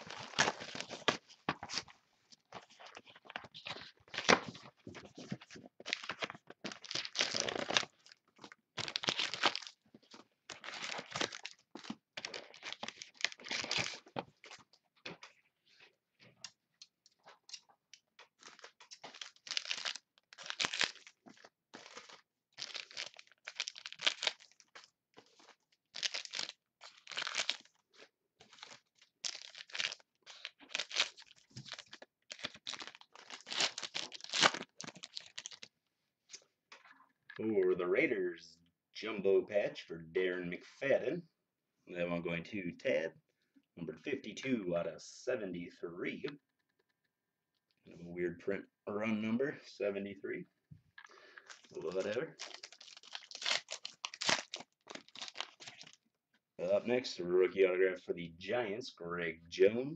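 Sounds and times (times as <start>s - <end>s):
foil wrappers tearing and crinkling: 8.8s - 9.8s, 18.4s - 21.2s, 21.8s - 27.7s, 28.5s - 35.7s, 51.4s - 56.0s.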